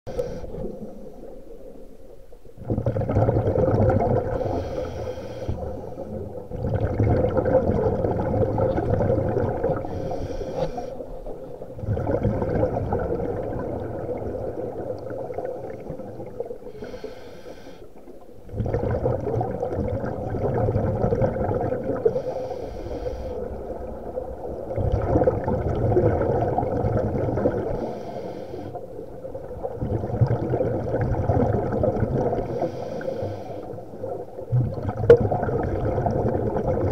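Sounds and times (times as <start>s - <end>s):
diver breathing through regulator: 0.1s - 0.7s, 4.2s - 6.2s, 9.8s - 11.2s, 16.7s - 18.0s, 22.0s - 23.6s, 27.7s - 28.9s, 32.4s - 33.8s
exhaled air bubbling: 0.1s - 36.9s.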